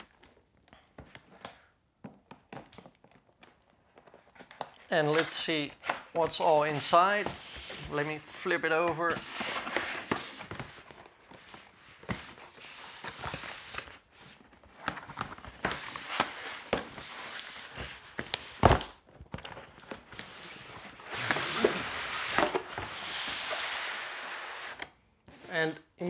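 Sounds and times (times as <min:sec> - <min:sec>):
cardboard rubbing and scraping: 0:06.3 - 0:14.4, 0:20.2 - 0:25.6.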